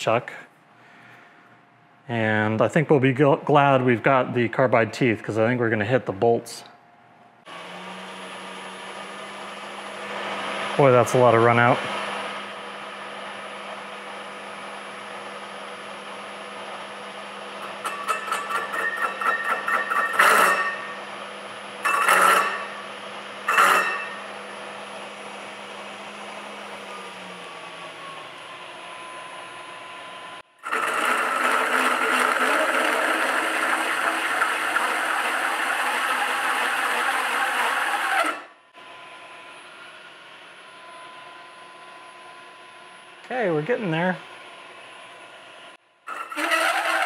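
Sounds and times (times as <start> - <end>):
machine motor humming: 7.5 - 18.8, 19.6 - 38.4
loud steady cutting noise: 7.5 - 38.5, 46.1 - 47.0
hole saw grinding: 17.6 - 24.7, 30.6 - 38.5, 46.1 - 47.0.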